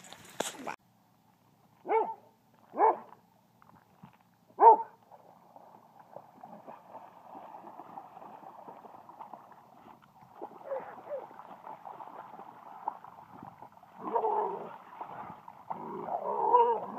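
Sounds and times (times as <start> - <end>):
dog barking: 1.8 - 3.1, 4.6 - 5.0, 10.6 - 11.2
dogs splashing through water: 4.7 - 16.9.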